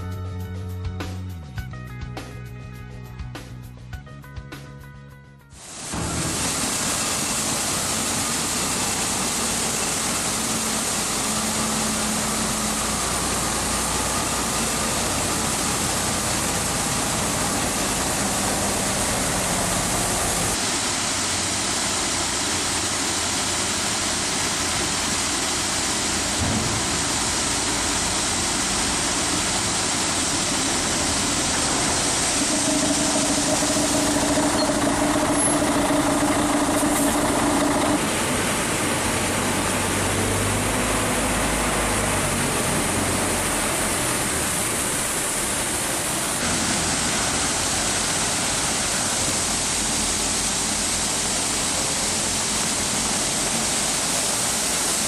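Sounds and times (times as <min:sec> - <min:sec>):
steady hiss: 0:05.6 - 0:55.0
truck diesel engines passing: 0:06.0 - 0:20.6, 0:25.6 - 0:55.0
truck engine idling: 0:26.4 - 0:44.3.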